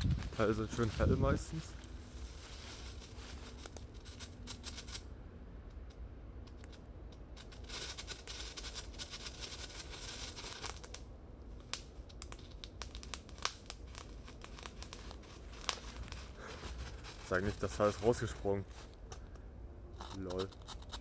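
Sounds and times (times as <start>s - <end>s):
firework popping and crackling: 7.6s - 18.3s.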